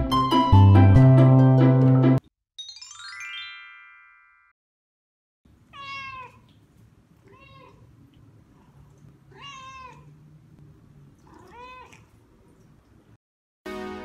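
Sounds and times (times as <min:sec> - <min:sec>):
cat meowing: 0:05.6 - 0:06.6, 0:07.2 - 0:07.9, 0:09.3 - 0:10.2, 0:11.2 - 0:12.2.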